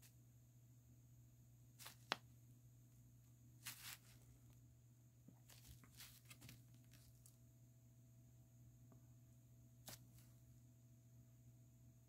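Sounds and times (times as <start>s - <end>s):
paper leaflet rustling and crinkling: 3.6s - 4.2s, 5.4s - 7.3s.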